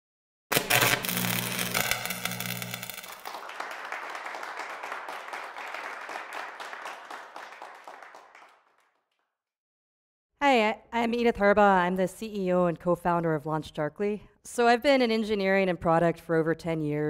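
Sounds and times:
audience applause: 3.0 - 9.0.

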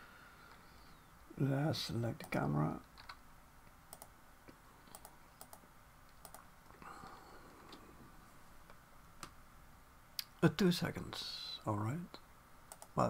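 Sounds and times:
keyboard and mouse clicks: 2.3 - 3.2, 3.9 - 6.8, 12.7 - 13.0.

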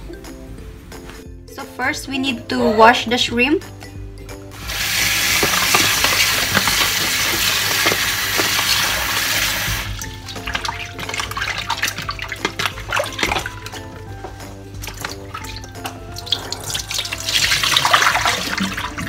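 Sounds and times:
background music: 0.0 - 19.0
tap water running into tub: 4.5 - 19.0
wet shrimp splashing and clicking: 10.0 - 19.0.

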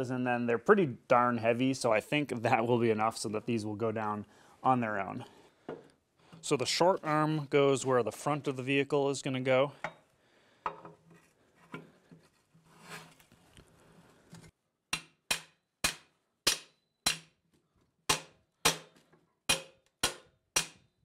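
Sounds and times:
hammer striking steel pin: 14.9 - 17.4, 18.1 - 18.9, 19.5 - 20.9.

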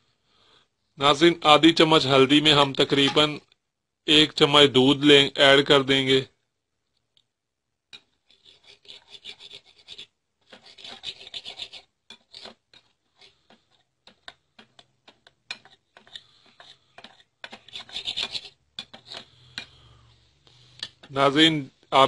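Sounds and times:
spoon stirring in a bowl: 8.0 - 21.2.

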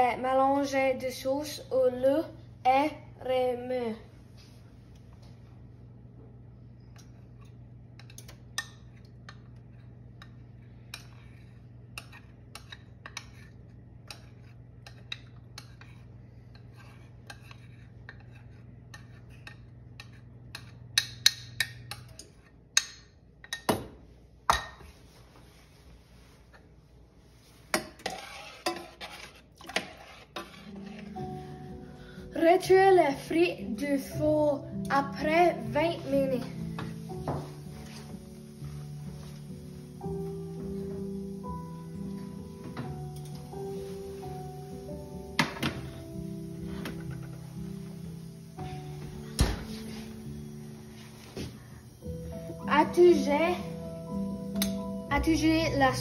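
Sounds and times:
low steady hum: 0.0 - 56.0
metal utensil stirring in saucepan: 27.7 - 31.2.

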